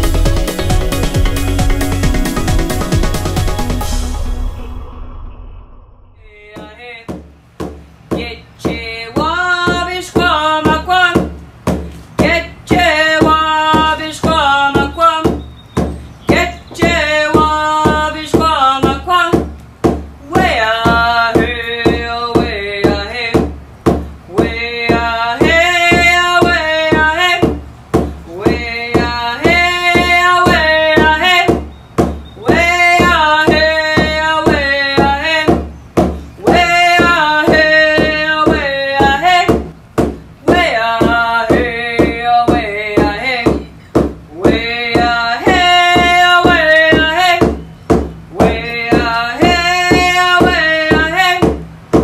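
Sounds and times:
steady drum beat: 0.0 - 4.5, 6.2 - 52.0
person singing long phrases: 6.2 - 7.1, 48.3 - 51.4.

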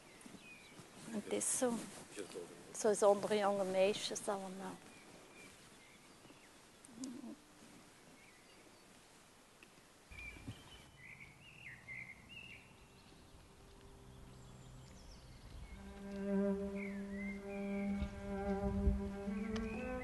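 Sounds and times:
birds chirping: 0.0 - 7.5, 10.1 - 20.0
low wind rumble: 12.7 - 20.0
bowed string music: 15.6 - 20.0.

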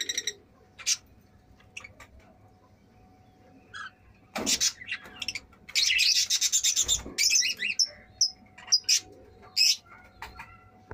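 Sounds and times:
lovebirds chirping: 0.0 - 10.9.

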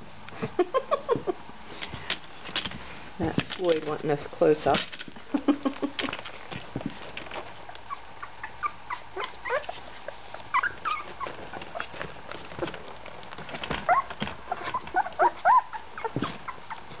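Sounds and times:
puppies squeaking and whimpering: 5.8 - 17.0.

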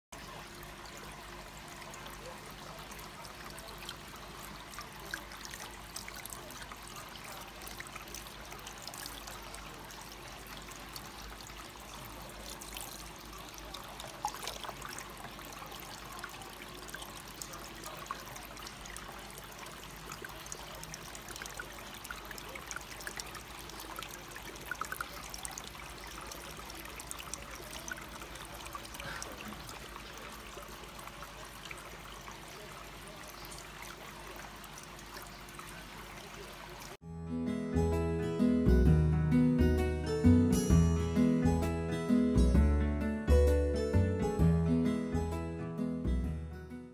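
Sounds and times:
small water splashes: 0.2 - 37.0
water trickling into basin: 0.2 - 37.0
water pouring onto plastic wheel: 3.4 - 32.5.

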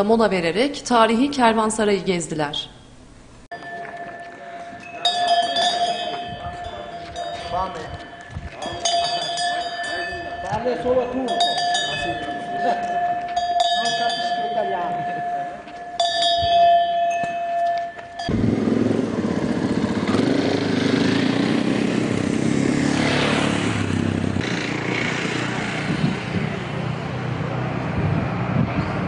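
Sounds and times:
light metallic clinking: 3.5 - 18.3
steady ringing tone: 3.5 - 18.5
motorcycle engines running: 18.0 - 29.0
motorcycle engine revving up: 18.3 - 29.0.

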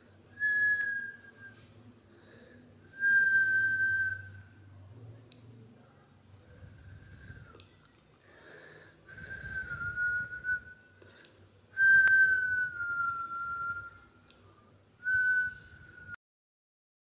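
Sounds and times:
person whistling: 0.4 - 1.7, 9.1 - 10.9, 11.8 - 14.0, 15.0 - 16.2.

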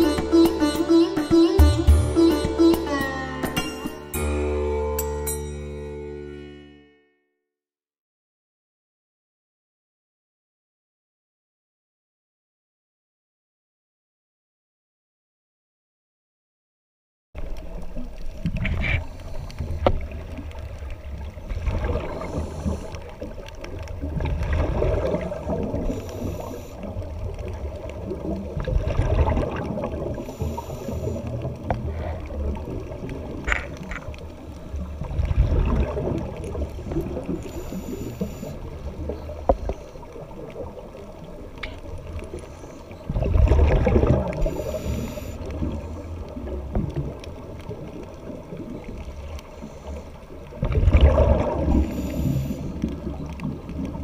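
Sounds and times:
exhaled bubbles: 17.6 - 42.4, 43.0 - 54.0
regulator inhalation hiss: 25.8 - 26.9, 30.2 - 31.4, 37.4 - 38.6, 44.4 - 46.1, 51.8 - 52.8.

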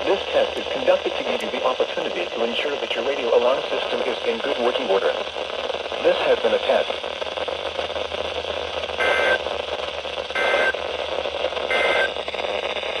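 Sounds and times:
radio static hiss: 0.0 - 13.0
digital alert data tones: 11.7 - 12.1.

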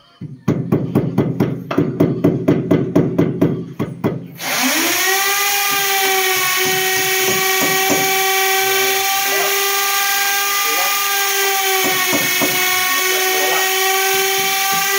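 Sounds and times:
power tool motor whining: 4.4 - 14.9.

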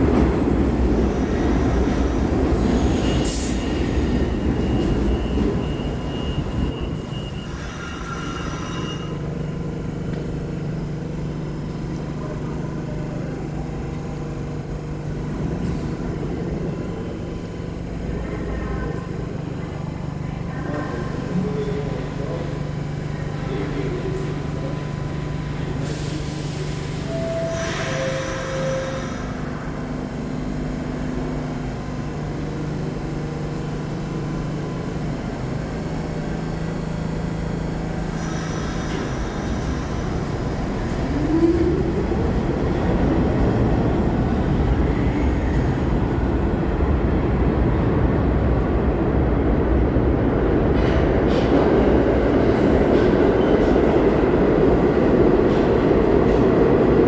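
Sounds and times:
train low hum: 0.0 - 57.0
train wheels rumbling on rails: 0.0 - 57.0.

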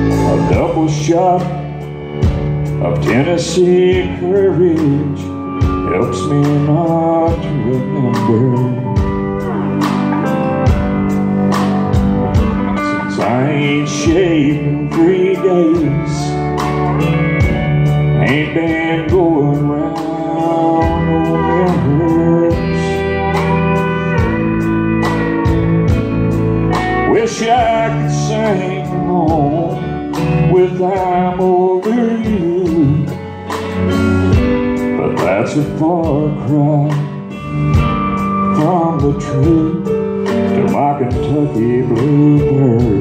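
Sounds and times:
man singing into microphone: 0.0 - 2.0, 2.6 - 9.4, 12.4 - 17.1, 18.0 - 24.7, 26.7 - 33.3, 34.8 - 43.0
acoustic guitar: 0.0 - 43.0
backing instruments with beat: 0.0 - 43.0.

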